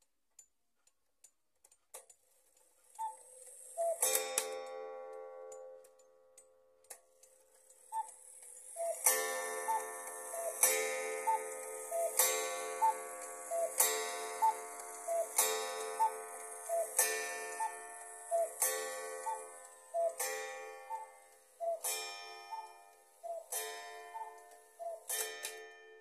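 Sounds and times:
two-note cuckoo call: 0:03.0 - 0:04.2, 0:07.9 - 0:25.6
ringing metallic clock strike: 0:08.0 - 0:26.0.

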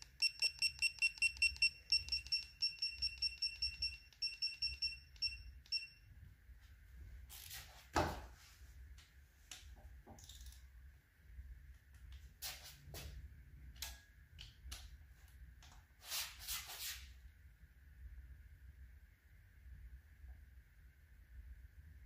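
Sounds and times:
torque wrench short high beeps: 0:00.0 - 0:06.0.

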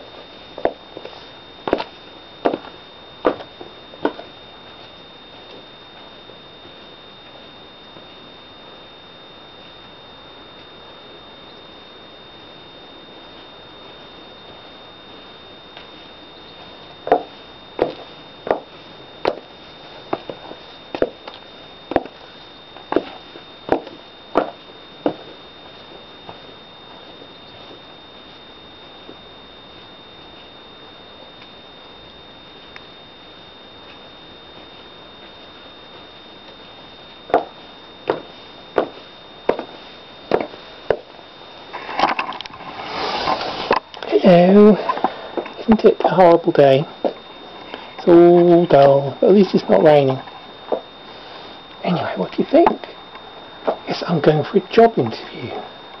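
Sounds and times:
high-heeled footsteps: 0:00.6 - 0:04.3, 0:17.0 - 0:19.5, 0:20.1 - 0:21.3, 0:21.9 - 0:22.2, 0:22.8 - 0:25.4, 0:37.3 - 0:41.1.

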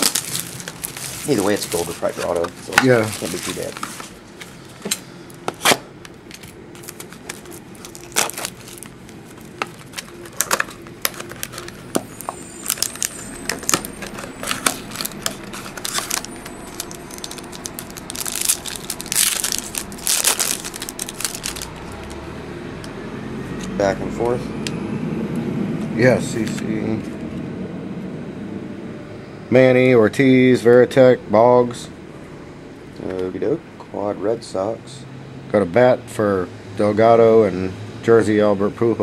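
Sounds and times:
wrappers crinkling and tearing: 0:00.0 - 0:05.0, 0:05.6 - 0:22.2.

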